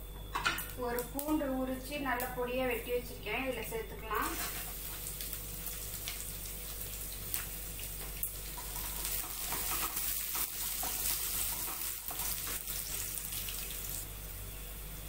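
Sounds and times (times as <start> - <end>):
garlic sizzling in oil: 4.0 - 15.0.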